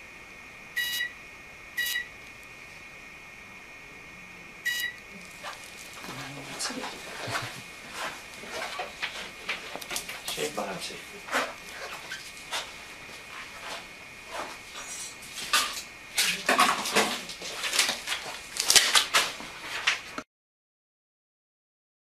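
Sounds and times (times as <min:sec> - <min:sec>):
faint steady high tone: 0:03.8 - 0:05.0.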